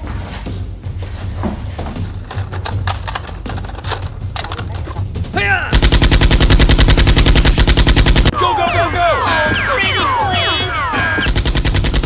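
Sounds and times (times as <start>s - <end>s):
rapid automatic gunfire: 5.7s - 8.3s, 11.3s - 12.0s.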